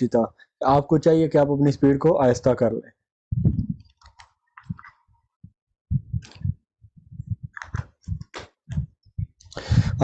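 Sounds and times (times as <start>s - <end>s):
soft low thumps: 3.3s - 3.9s, 5.4s - 9.4s.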